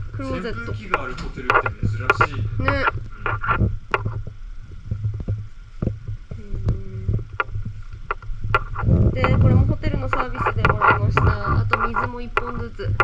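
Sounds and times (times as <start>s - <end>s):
steady low hum: 0.0s - 13.0s
handheld camera knocks and clicks: 0.9s - 4.3s, 7.2s - 13.0s.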